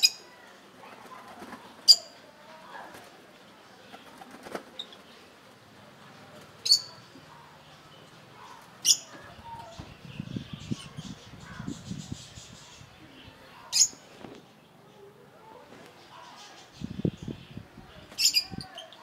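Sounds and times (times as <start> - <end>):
pigeons splashing and flapping: 3.9 - 4.8.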